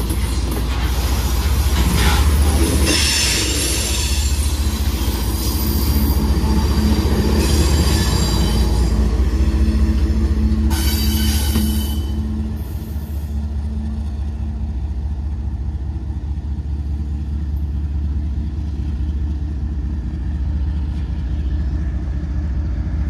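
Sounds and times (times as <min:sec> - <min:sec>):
locomotive engine drone: 0:00.0 - 0:23.0.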